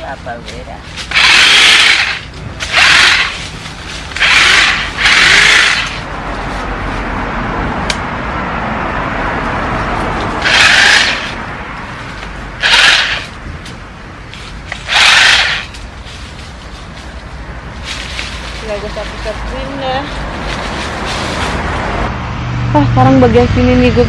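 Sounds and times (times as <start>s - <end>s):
electric chainsaw cutting wood: 1.1s - 3.4s, 4.1s - 6.0s, 10.4s - 11.4s, 12.6s - 13.4s, 14.7s - 15.7s.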